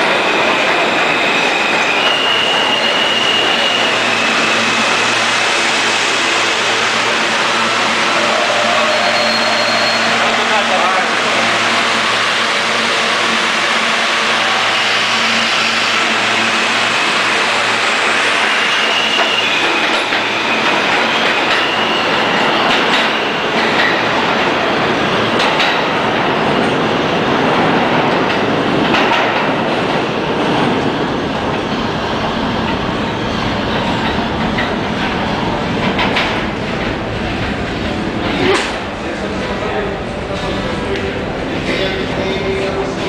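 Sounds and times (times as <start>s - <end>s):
subway train wheels rumbling on rail: 0.0s - 43.0s
thin high whine: 7.2s - 12.0s.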